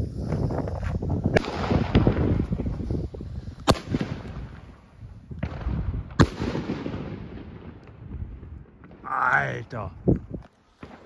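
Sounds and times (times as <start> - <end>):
firework crackle and rumble: 0.0 - 11.0
firework bangs: 0.4 - 9.1.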